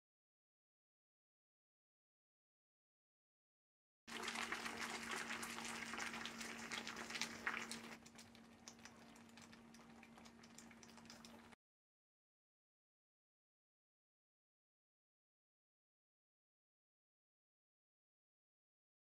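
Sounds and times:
syrup bubbling in a pan: 4.1s - 11.6s.

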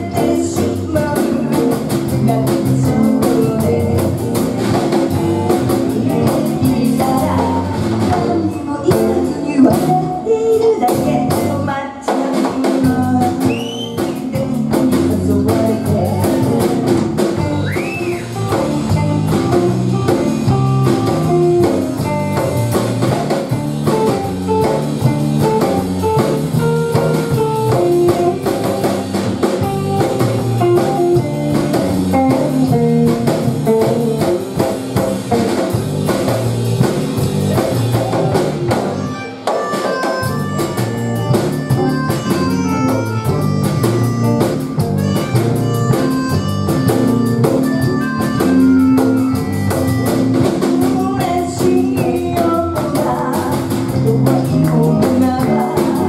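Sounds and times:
electric bass: 0.0s - 11.8s, 12.8s - 39.4s, 40.1s - 56.0s
electric guitar lead: 0.0s - 11.9s, 12.6s - 56.0s
drum kit beat: 0.0s - 56.0s.

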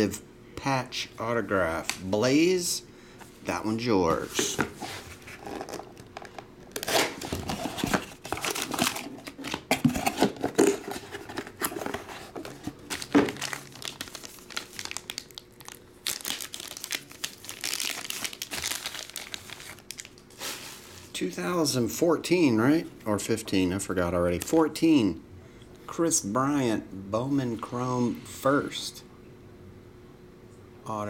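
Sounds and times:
plastic wrapping crinkling: 4.4s - 21.1s.

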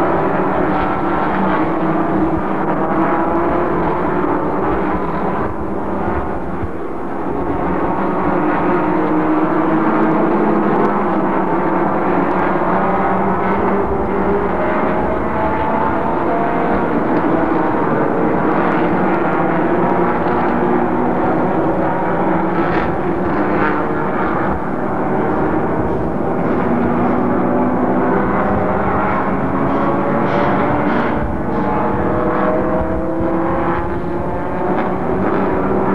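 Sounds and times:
racing car engines: 0.0s - 35.9s.

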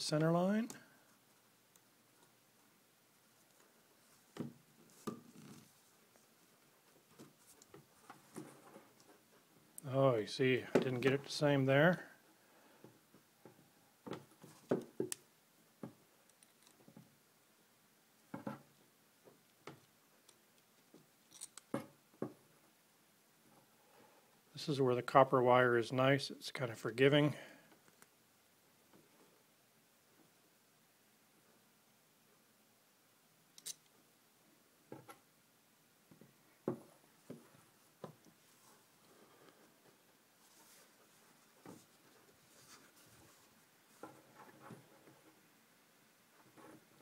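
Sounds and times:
pliers and wire clicking: 20.2s - 21.8s, 33.5s - 33.9s.

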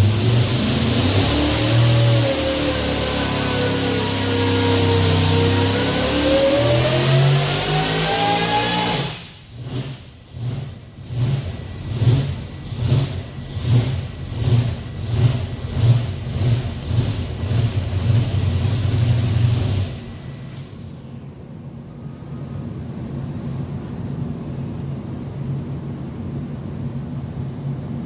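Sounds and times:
supercharged engine revving: 0.0s - 20.8s
engine rough idle: 9.2s - 21.2s.

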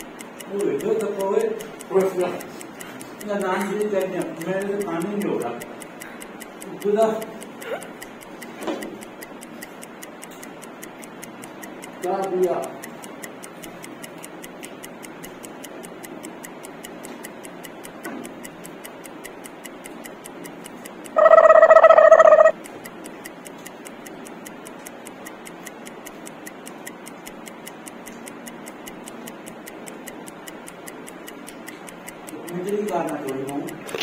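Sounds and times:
countdown timer ticking: 0.0s - 34.0s
loud steady beep: 21.2s - 22.5s.

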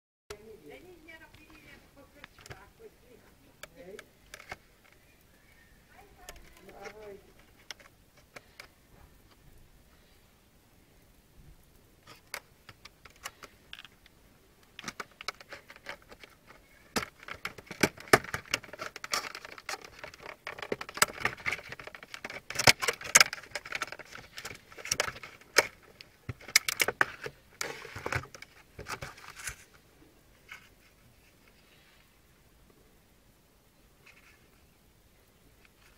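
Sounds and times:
plastic blister pack crackling: 12.0s - 29.7s.

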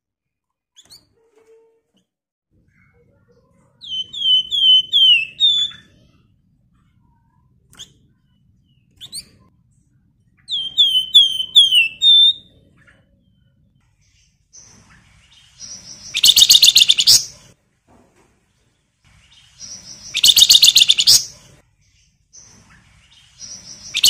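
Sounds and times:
songbird whistling phrases: 3.8s - 5.9s, 10.5s - 12.5s, 15.6s - 17.4s, 19.6s - 21.4s, 23.4s - 24.0s
sharp high bird calls: 3.8s - 6.1s, 10.5s - 12.5s, 14.6s - 17.5s, 19.4s - 21.4s, 23.1s - 24.0s.

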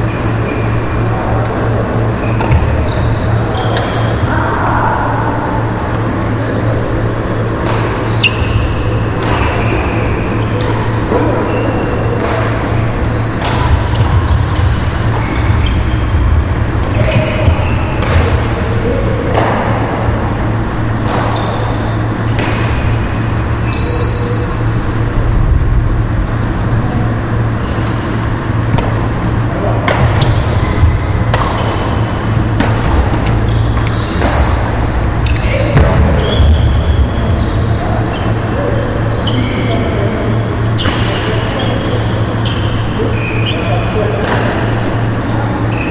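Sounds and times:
steady low hum: 0.0s - 45.9s
shoes squeaking on wooden court: 2.0s - 4.4s, 5.6s - 6.2s, 7.6s - 19.5s, 21.0s - 23.0s, 23.6s - 24.8s, 29.9s - 40.0s, 40.7s - 45.9s
rackets hitting shuttlecock: 7.6s - 11.3s, 12.1s - 15.5s, 17.0s - 18.6s, 19.2s - 20.0s, 20.8s - 23.2s, 28.6s - 29.1s, 29.8s - 36.6s, 44.2s - 44.8s.

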